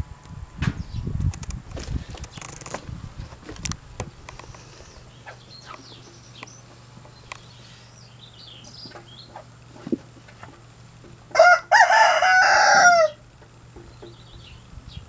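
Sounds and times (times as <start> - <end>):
steady low hum: 0.0 - 15.0
small birds chirping: 0.8 - 1.2, 4.2 - 10.7, 13.4 - 15.0
sharp clicks: 7.2 - 7.5.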